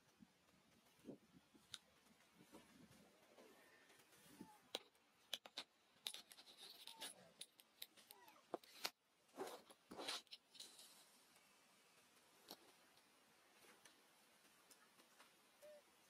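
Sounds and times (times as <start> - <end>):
faint outdoor ambience: 0.0 - 16.0
scratchy rustles: 6.0 - 11.2.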